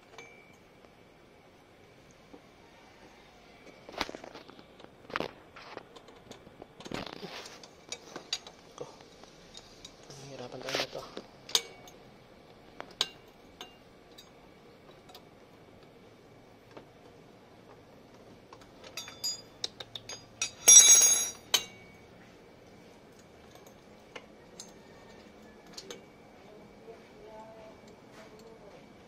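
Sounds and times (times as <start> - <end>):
metal clinking rattle: 18.8 - 21.8
metal parts clicking and clinking: 18.8 - 21.8.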